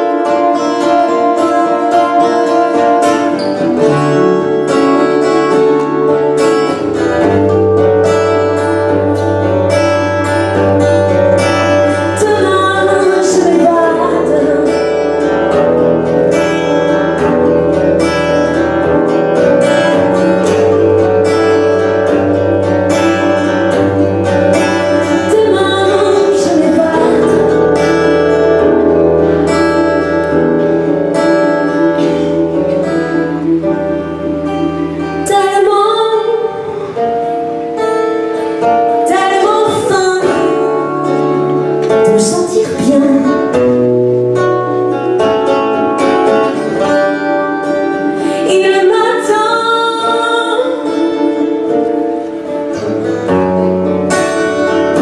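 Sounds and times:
person singing: 0.0 - 15.7, 19.4 - 28.8, 38.8 - 44.7, 46.4 - 53.3
acoustic guitars strummed: 0.0 - 55.0.

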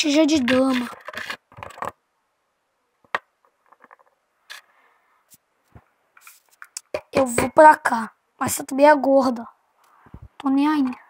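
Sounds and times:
plastic toys clicking on wood: 0.4 - 2.0.

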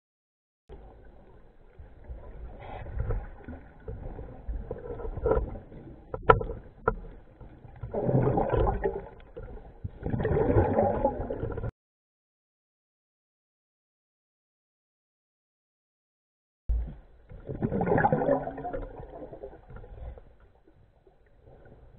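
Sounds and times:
underwater bubbles gurgling: 0.7 - 11.7, 16.7 - 21.9.

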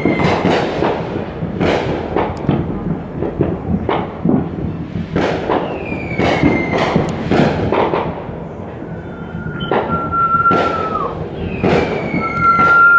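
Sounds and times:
firework whistles: 0.0 - 2.0, 4.6 - 12.9
fireworks bangs and booms: 0.0 - 12.9.

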